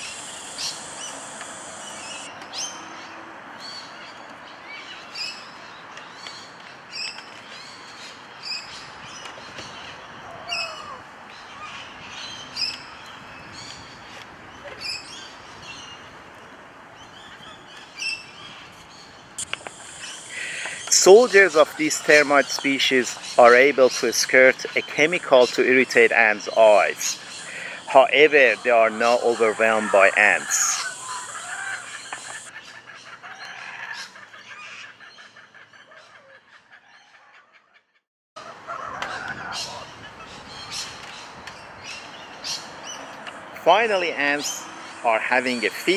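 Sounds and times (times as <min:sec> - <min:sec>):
background hiss: 0:00.0 - 0:02.7, 0:18.9 - 0:32.5
birds chirping: 0:00.0 - 0:37.3, 0:38.4 - 0:45.9
faint outdoor background: 0:00.0 - 0:45.9
sharp click: 0:19.4 - 0:19.9.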